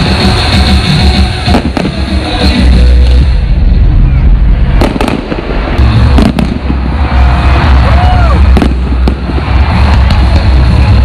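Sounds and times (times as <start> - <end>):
fireworks bangs: 1.2 - 3.3, 4.6 - 11.0
low rumble: 1.6 - 11.0.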